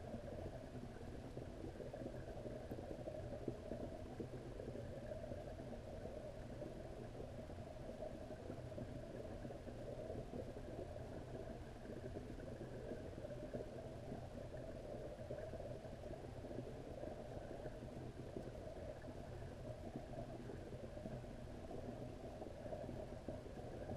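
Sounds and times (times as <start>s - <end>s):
muffled underwater rumble and hiss: 0.0s - 23.9s.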